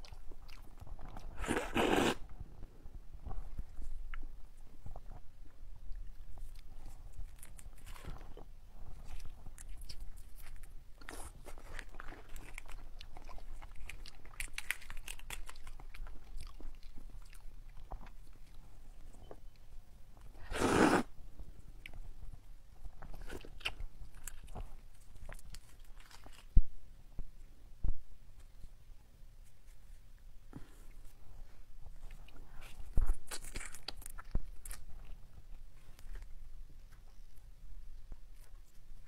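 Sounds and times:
crunchy biting and chewing: 0:00.0 - 0:02.3, 0:06.4 - 0:18.6, 0:32.1 - 0:35.2
prawn shell crackling and snapping: 0:11.6 - 0:16.7.

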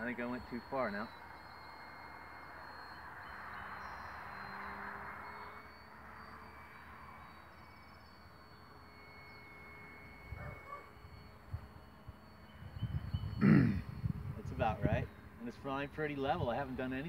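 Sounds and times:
distant model plane motor buzz: 0:00.0 - 0:17.0.

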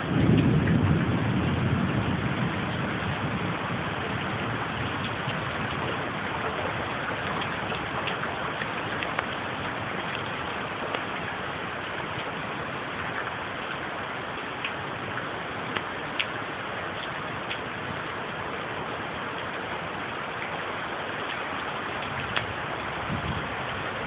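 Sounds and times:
low thunder rumble: 0:00.0 - 0:13.2, 0:21.6 - 0:24.0
rain hissing: 0:00.0 - 0:24.0.

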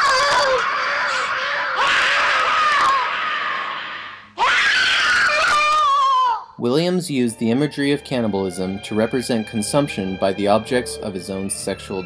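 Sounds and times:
woman screaming: 0:00.0 - 0:06.5.

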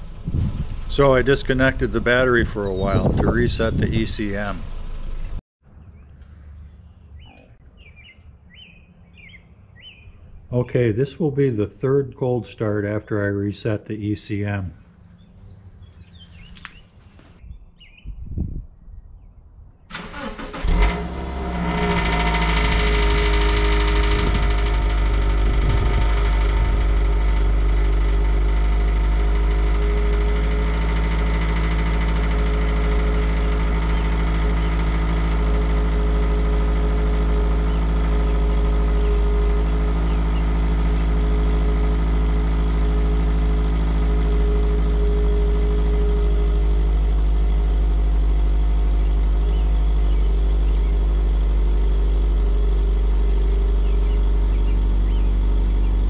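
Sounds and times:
car engine idling: 0:00.0 - 0:05.4, 0:19.9 - 0:56.0.

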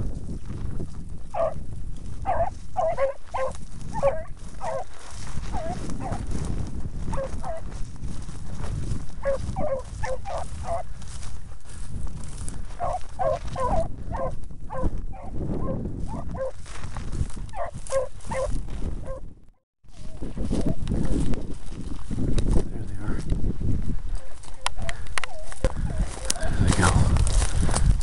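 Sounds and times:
dogs baying: 0:01.3 - 0:01.6, 0:02.2 - 0:06.2, 0:07.1 - 0:07.7, 0:09.2 - 0:10.9, 0:12.7 - 0:16.6, 0:17.5 - 0:19.2, 0:24.2 - 0:26.6.

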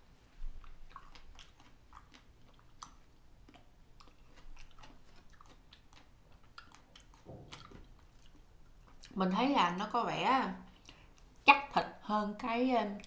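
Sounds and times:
close-up chewing: 0:00.2 - 0:09.2, 0:10.6 - 0:11.5.

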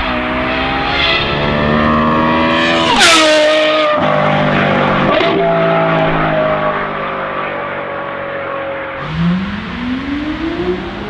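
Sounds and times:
sports car engine accelerating: 0:00.0 - 0:11.0.

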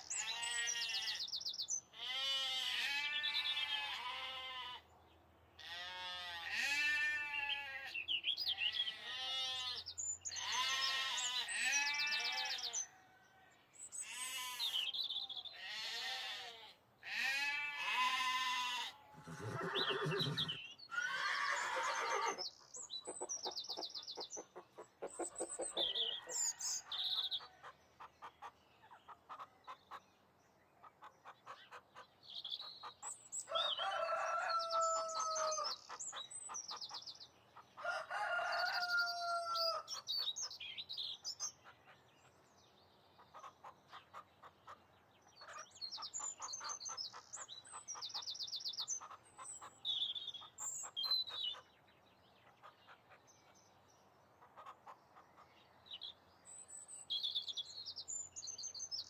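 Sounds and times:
small birds chirping: 0:00.0 - 0:04.8, 0:06.6 - 0:37.6, 0:38.2 - 0:59.0
hens clucking: 0:23.0 - 0:26.4
rooster crowing: 0:33.5 - 0:35.7, 0:37.8 - 0:39.9.

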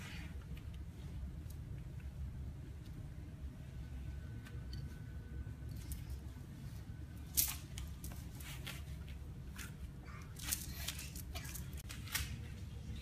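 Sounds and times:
low steady hum: 0:00.0 - 0:13.0
children handling toys rustling: 0:05.6 - 0:13.0.

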